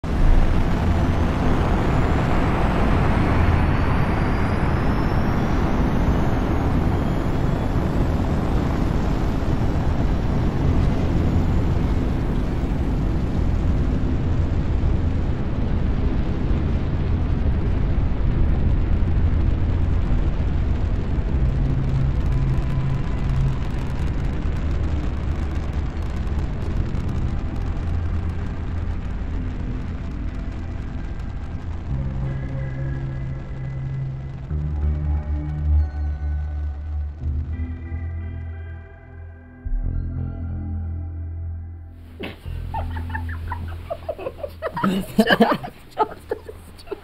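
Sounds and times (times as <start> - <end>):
deep engine rumble: 0.0 - 47.0
high rising whistles: 1.5 - 13.0.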